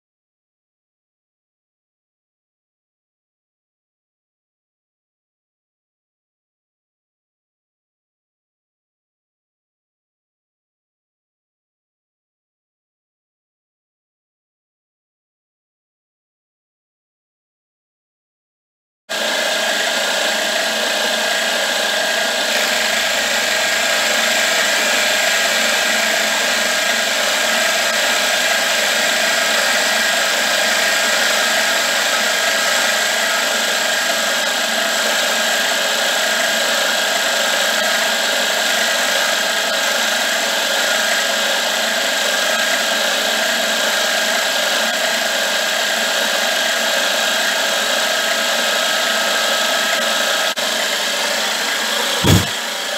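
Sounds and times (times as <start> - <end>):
milling machine cutting metal: 19.1 - 37.1, 52.2 - 52.5.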